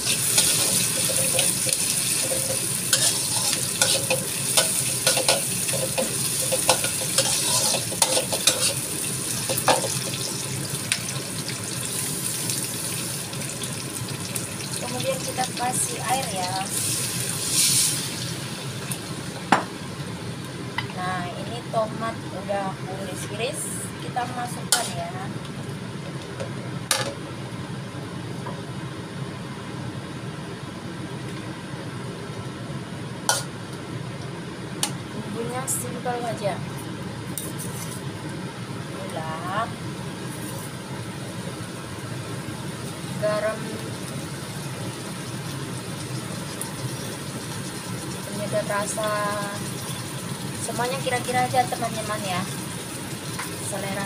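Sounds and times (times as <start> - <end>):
onions sizzling in a wok: 0.0 - 26.3, 34.6 - 54.0
low kitchen rumble: 0.0 - 54.0
metal spatula scraping pan: 2.2 - 8.8.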